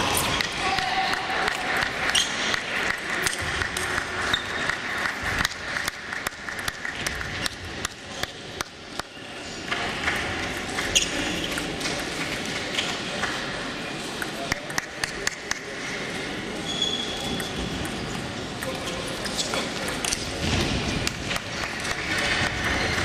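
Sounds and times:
table tennis balls clicking: 1.4 - 13.4, 17.2 - 23.0.

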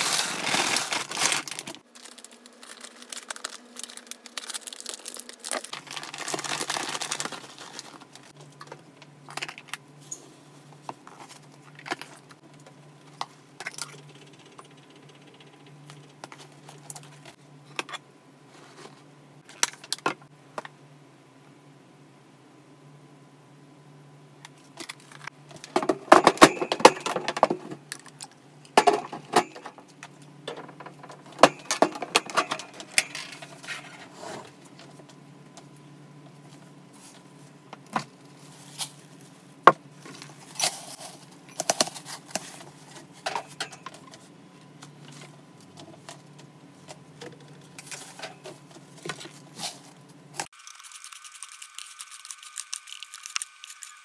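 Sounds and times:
paper bedding rustling: 0.0 - 8.3.

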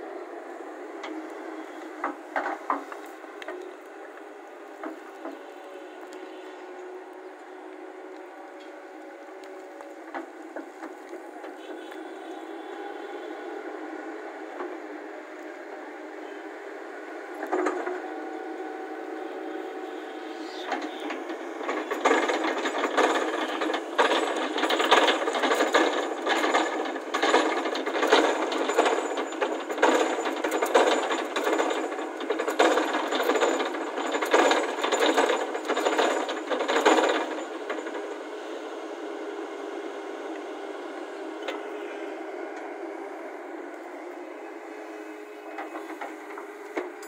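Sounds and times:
machinery clattering and knocking: 1.9 - 3.9, 4.8 - 6.2, 9.3 - 12.5, 17.4 - 18.1, 19.9 - 38.4, 45.4 - 47.0
machine humming: 17.8 - 38.5.

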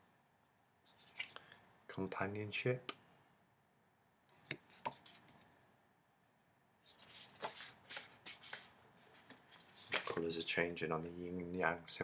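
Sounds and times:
cards clicking and rubbing: 6.9 - 10.4.

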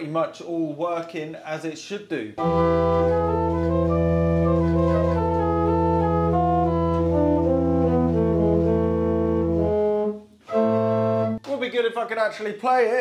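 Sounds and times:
pipe organ chords: 2.4 - 11.4.

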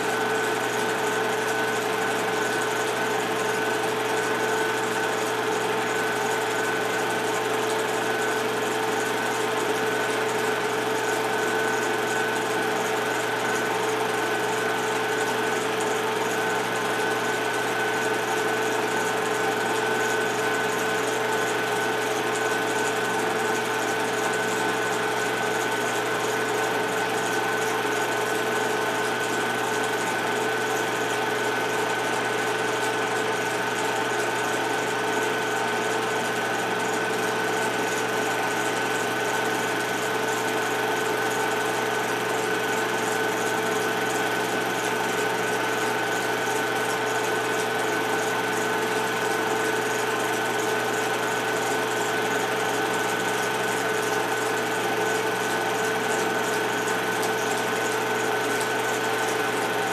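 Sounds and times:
film projector whirring: 0.0 - 59.9.

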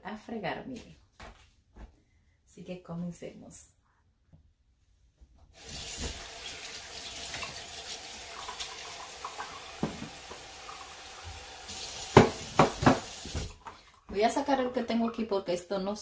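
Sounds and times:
tap water running onto plate: 5.6 - 14.2
dishes knocking in sink: 9.8 - 10.3, 12.1 - 13.6.

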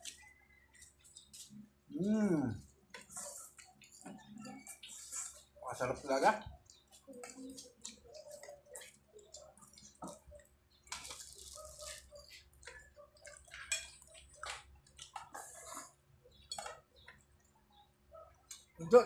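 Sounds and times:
chewing: 6.6 - 17.3.

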